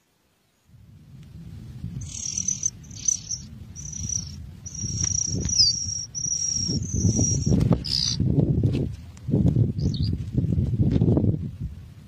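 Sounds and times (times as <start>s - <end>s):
low rumble: 0.7s - 12.0s
nestling birds peeping: 1.9s - 8.2s, 9.7s - 10.2s.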